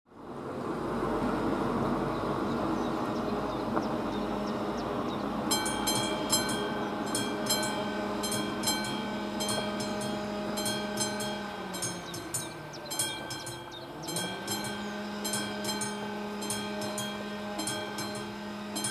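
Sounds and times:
level crossing bell ringing: 5.4s - 18.9s.

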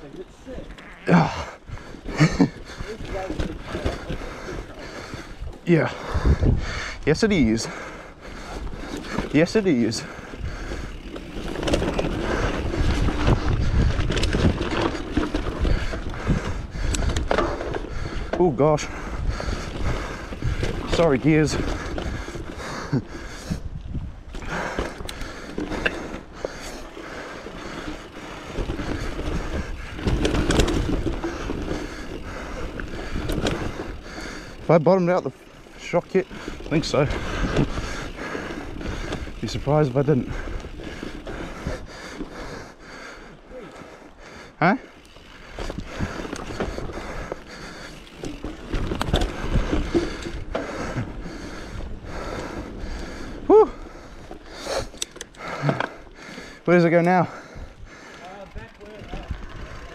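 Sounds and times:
bike rattling and knocking: 0.0s - 59.9s
bike tyres rolling over loose dirt: 0.0s - 59.9s
wind rumble on microphone: 4.6s - 7.1s, 11.7s - 22.6s, 23.4s - 24.6s.

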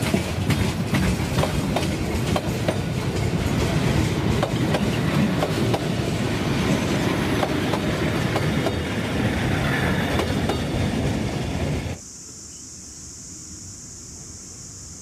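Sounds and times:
wheels clickety-clack on rail joints: 0.0s - 11.7s
train wheels rumbling on rail: 0.0s - 12.0s.

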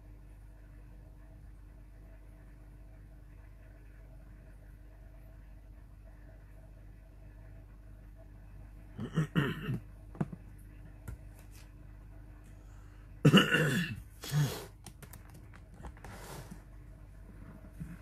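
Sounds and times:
man coughing: 9.0s - 9.8s, 13.2s - 14.7s.

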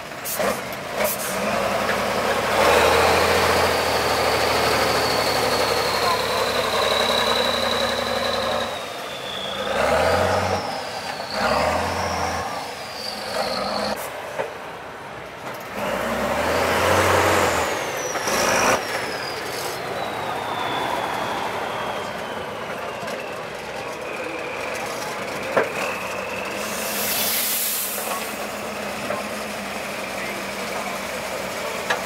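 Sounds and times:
diesel truck engine revving: 0.0s - 32.0s
high engine whistle: 0.2s - 14.1s, 15.8s - 32.0s
loud burst of noise: 15.8s - 31.6s.

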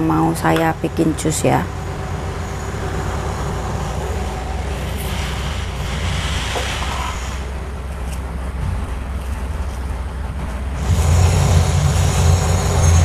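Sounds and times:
low machine rumble: 0.0s - 13.0s
broad grinding hiss: 1.8s - 8.3s, 10.7s - 13.0s.

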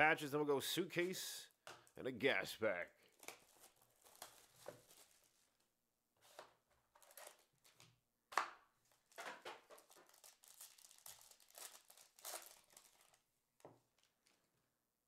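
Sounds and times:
foil wrapper crinkling and tearing: 3.1s - 5.5s, 9.7s - 13.3s.

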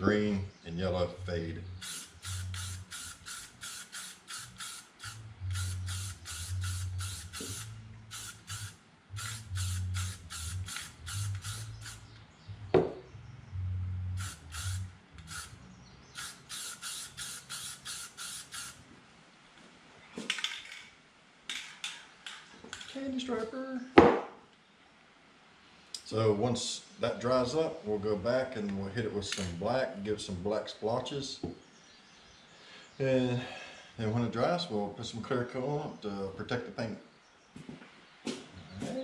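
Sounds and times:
aerosol spray bursts: 1.8s - 12.1s, 14.2s - 15.5s, 16.1s - 18.8s.

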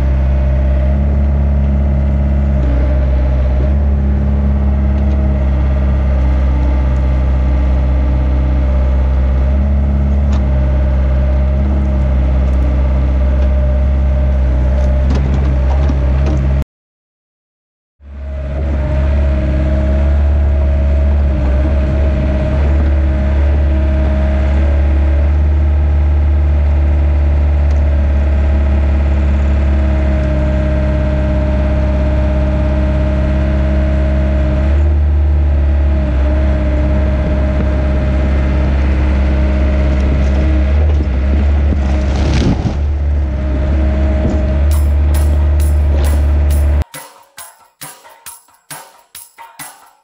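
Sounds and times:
excavator diesel engine: 0.0s - 16.6s, 18.0s - 47.0s
tree crashing down: 41.4s - 43.4s.

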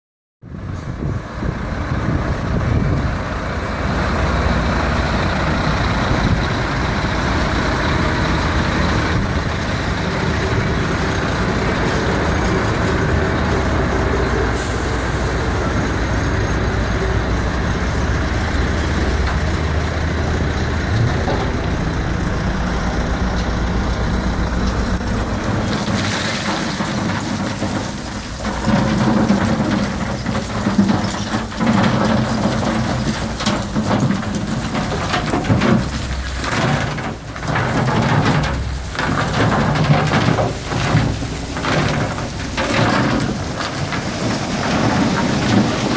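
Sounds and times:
diesel lorry engine running: 0.4s - 45.9s
gravel pouring and rattling: 1.9s - 45.9s
brief air hiss: 14.6s - 15.4s.

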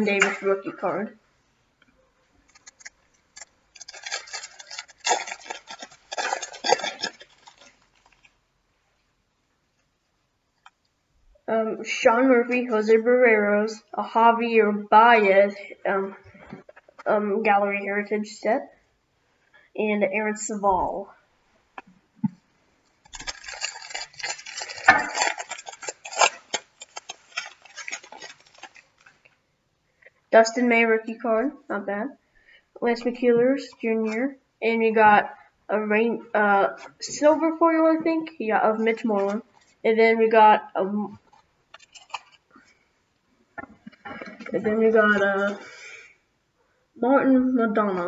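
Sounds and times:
foil wrapper crinkling: 2.4s - 8.4s, 22.8s - 29.3s, 41.2s - 42.9s.

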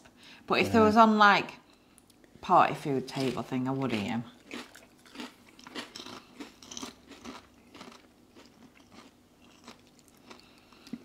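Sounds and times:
people chewing crunchy snacks: 3.2s - 11.0s.

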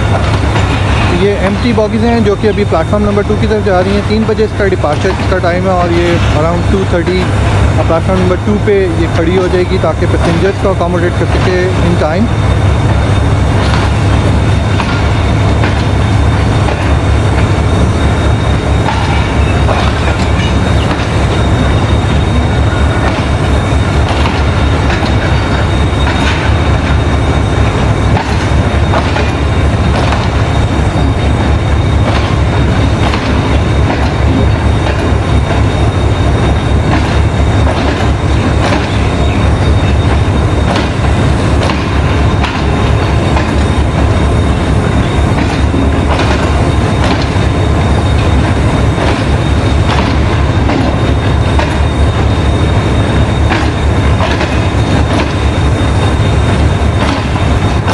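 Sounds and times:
train coaches rumbling past: 0.0s - 57.9s
wheels clicking over rail joints: 28.1s - 30.5s, 36.9s - 44.1s, 45.3s - 47.5s, 53.5s - 55.5s.

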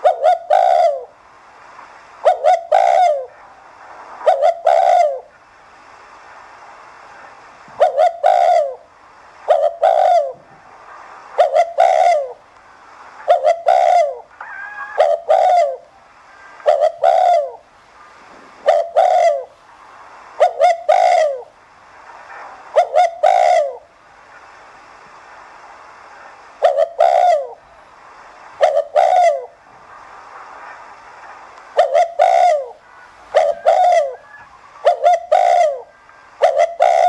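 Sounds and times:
dove cooing: 0.0s - 1.2s, 2.2s - 3.4s, 4.2s - 5.3s, 7.7s - 10.5s, 11.4s - 12.4s, 13.2s - 17.6s, 18.4s - 19.5s, 20.4s - 21.5s, 22.7s - 23.9s, 26.6s - 27.6s, 28.6s - 29.6s, 31.8s - 37.0s.

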